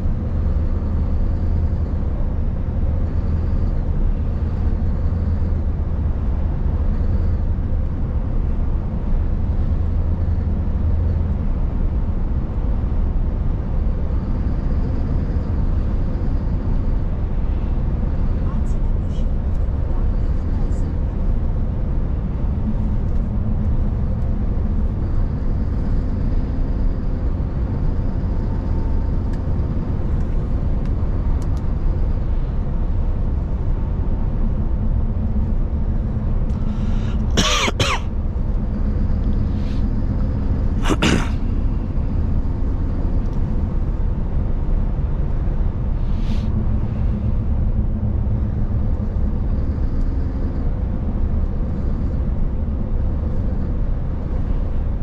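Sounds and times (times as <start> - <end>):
truck engine rumbling: 0.0 - 55.0
tyre and road noise: 35.2 - 52.1
person coughing: 37.3 - 38.1, 40.8 - 41.4.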